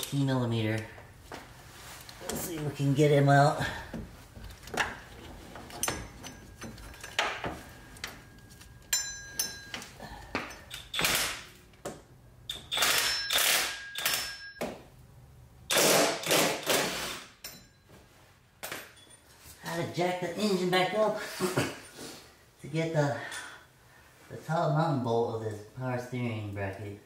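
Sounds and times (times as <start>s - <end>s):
ratchet clicking: 12.5s - 14.4s.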